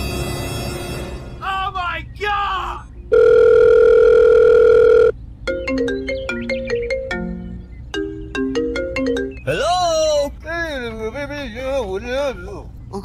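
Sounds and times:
telephone ringing tone: 3.1 - 5.2
marimba-like ringtone tune: 3.2 - 9.5.

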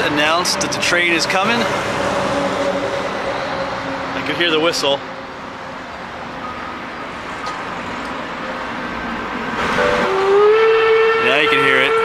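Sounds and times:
steady background noise: 0.0 - 10.4
steam locomotive whistle: 9.7 - 12.0.

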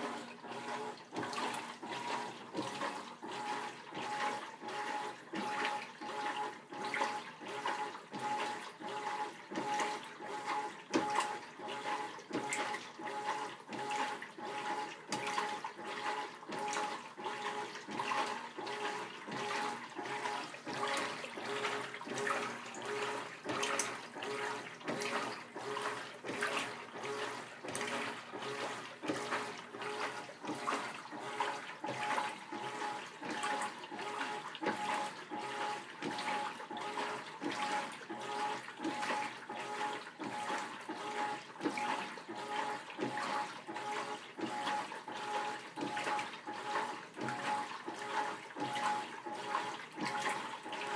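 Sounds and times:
washing machine water sloshing: 0.0 - 50.9.

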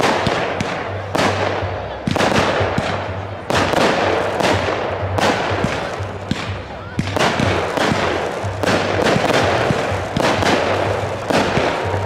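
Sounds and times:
fireworks bangs: 0.0 - 12.0
crackle of sparks: 5.4 - 12.0.

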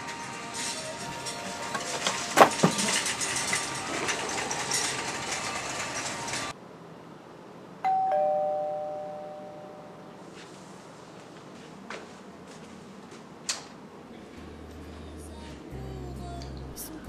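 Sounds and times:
background noise with clatter: 0.0 - 6.6
doorbell ding-dong chime: 7.9 - 10.0.

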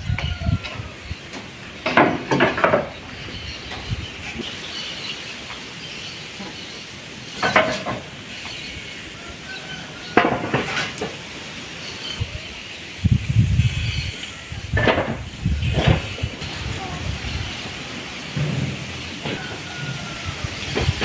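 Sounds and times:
wind buffeting microphone: 0.0 - 1.9, 2.6 - 4.7, 12.0 - 21.0
faint outdoor background: 0.0 - 21.0
hard objects knocking: 1.4 - 3.0.

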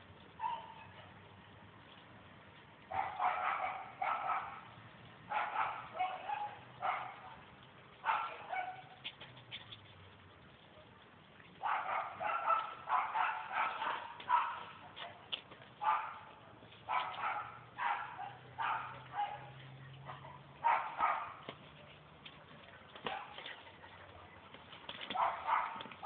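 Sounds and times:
small dog yipping and barking: 0.4 - 1.0, 5.3 - 7.4, 8.0 - 9.0, 11.6 - 15.2, 16.9 - 21.4.

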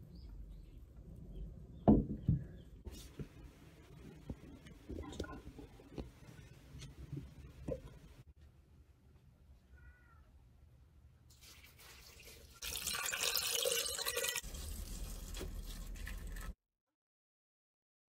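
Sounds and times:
liquid pouring into glass jar: 11.9 - 16.6.

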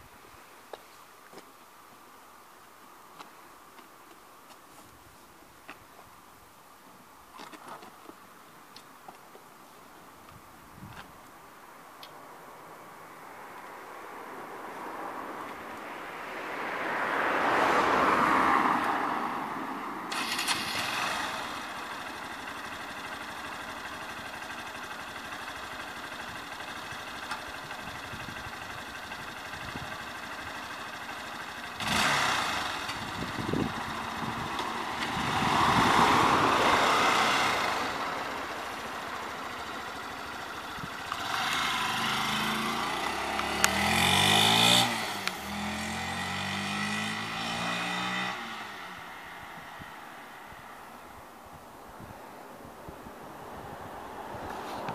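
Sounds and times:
passing vehicle: 12.5 - 54.9
motorcycle accelerating through gears: 20.1 - 50.7
motorcycle engine idling: 20.2 - 35.4, 36.8 - 44.2.

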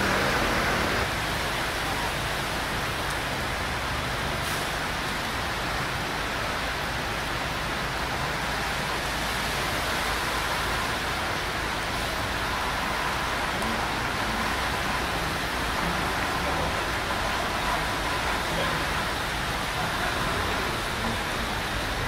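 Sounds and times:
vehicle engine passing: 0.0 - 1.1
floodwater rushing under cars: 0.0 - 22.0
traffic: 0.0 - 22.0.

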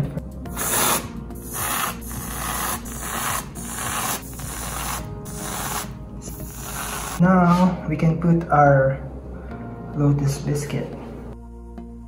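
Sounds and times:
aerosol can hissing spurts: 0.5 - 7.2.

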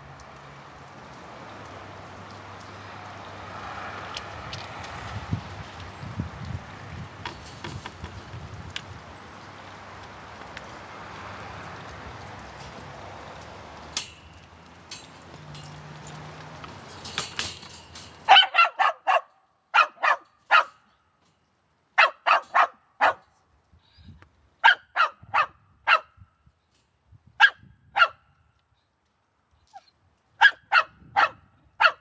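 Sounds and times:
rustling clatter: 7.2 - 8.4, 13.9 - 18.4
dog barking: 18.3 - 20.8, 22.0 - 23.3, 24.6 - 26.1, 27.4 - 28.2, 30.4 - 32.0.

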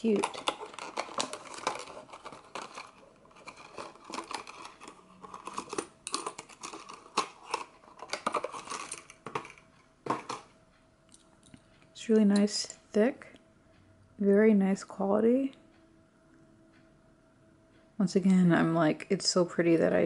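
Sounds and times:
plastic case crinkling and clicking: 0.0 - 10.5.

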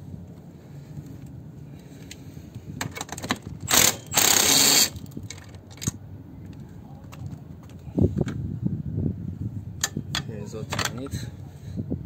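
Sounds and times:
cordless power driver running: 3.6 - 5.1.

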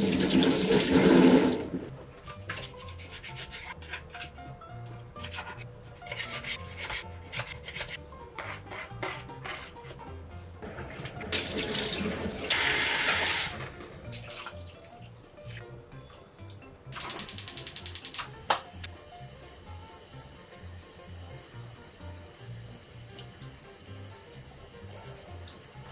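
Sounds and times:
water pouring into pot: 0.0 - 1.9, 10.8 - 15.6.

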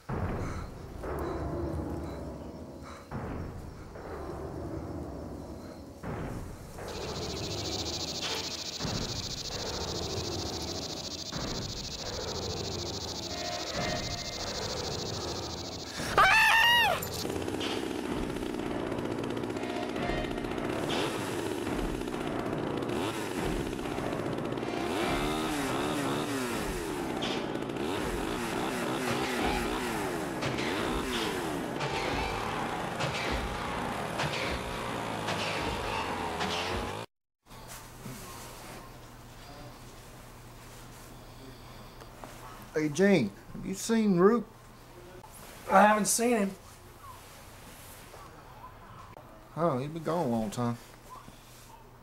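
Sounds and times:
small engine revving: 6.9 - 16.2, 17.1 - 37.1
insect chorus trilling: 6.9 - 17.3.

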